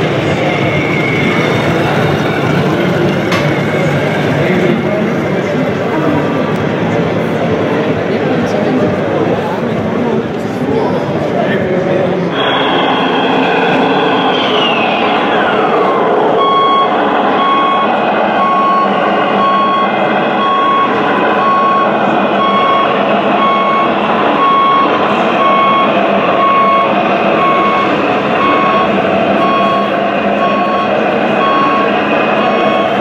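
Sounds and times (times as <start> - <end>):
steady running noise: 0.0 - 33.0
falling whine: 12.2 - 33.0
reversing beeper: 12.3 - 33.0.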